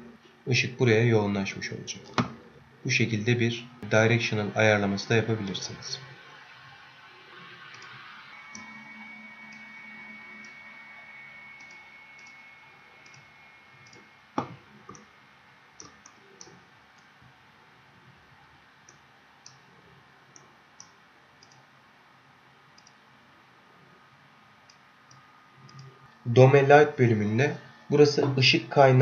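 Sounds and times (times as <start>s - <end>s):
computer mouse clicking: 7.7s - 8.8s, 11.6s - 12.4s, 13.0s - 15.1s, 15.8s - 17.1s, 20.3s - 21.7s, 22.8s - 23.0s, 24.7s - 25.9s.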